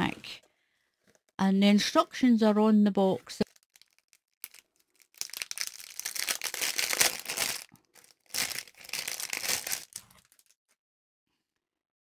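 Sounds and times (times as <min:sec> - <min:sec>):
plastic wrapping crinkling: 0:03.4 - 0:10.6.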